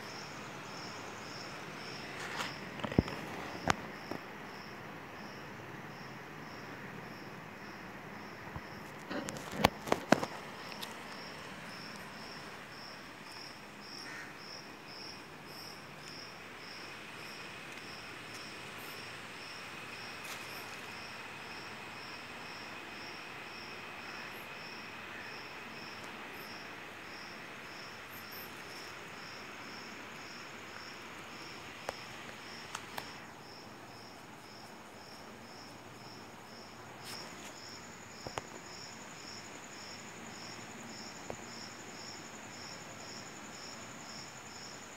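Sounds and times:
cricket chirping: 0:00.0 - 0:44.9
faint outdoor hiss: 0:00.0 - 0:44.9.

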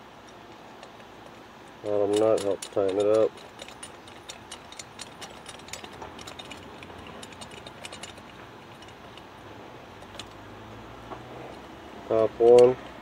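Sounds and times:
nut spinning on threaded bolt: 0:00.2 - 0:09.4.

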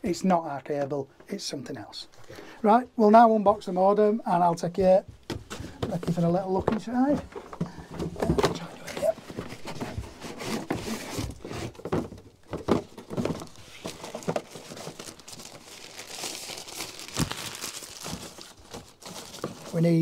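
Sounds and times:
cardboard box and plastic tray knocking: 0:11.8 - 0:14.6
plastic bag crinkling: 0:12.5 - 0:20.0.

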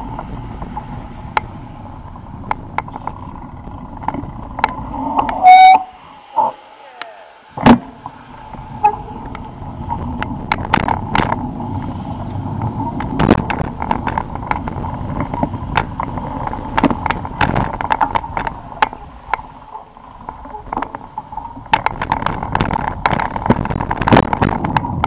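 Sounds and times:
bicycle tyres rumbling on paving: 0:00.0 - 0:06.6, 0:07.5 - 0:25.0
bicycle frame rattling and knocking: 0:02.4 - 0:04.9, 0:08.5 - 0:11.5, 0:12.8 - 0:25.0.

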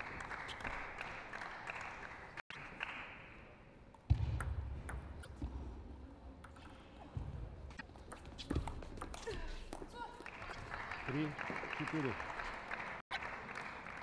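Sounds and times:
applause: 0:00.0 - 0:03.4, 0:10.2 - 0:14.0.

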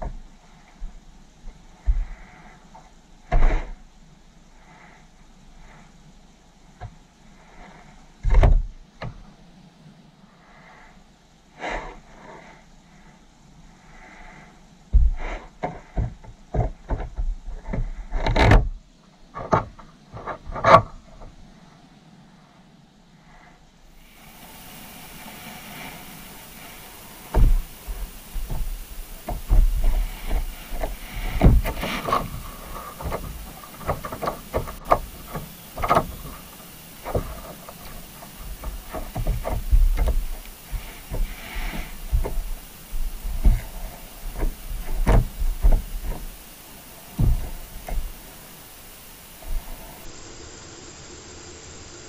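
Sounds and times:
knocks and thumps underwater: 0:27.3 - 0:36.4, 0:37.1 - 0:46.4, 0:47.1 - 0:48.2.

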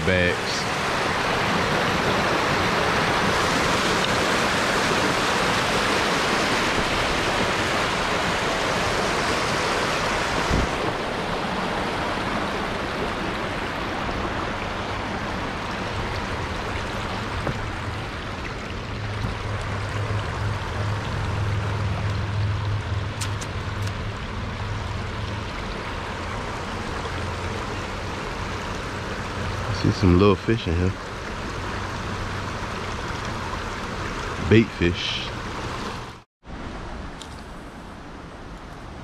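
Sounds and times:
flowing water rushing: 0:00.0 - 0:39.0
low hum: 0:16.1 - 0:28.0.

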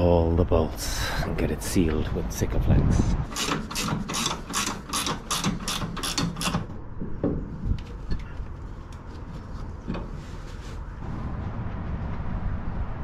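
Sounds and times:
ratchet spanner clicking: 0:03.3 - 0:06.6.

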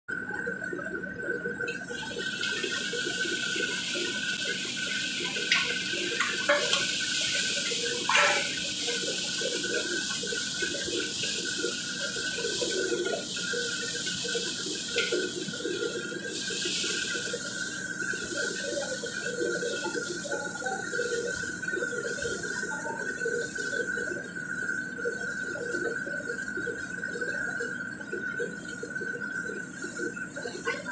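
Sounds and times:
steady high whine: 0:00.2 - 0:24.8
burner flame and sizzling food hiss: 0:00.3 - 0:30.9
metal ladle scraping wok: 0:05.5 - 0:09.2.

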